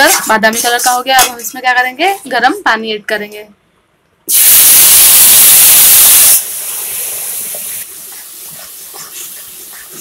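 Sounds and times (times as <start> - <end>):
loud hiss of steam: 4.3 - 10.0.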